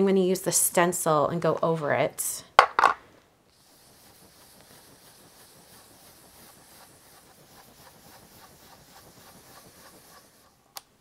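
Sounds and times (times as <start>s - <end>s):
brush rubbing on paper: 3.5s - 10.7s.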